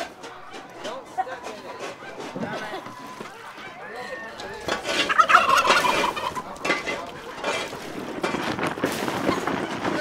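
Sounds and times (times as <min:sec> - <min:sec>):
turkey gobbling: 0:01.4 - 0:07.9.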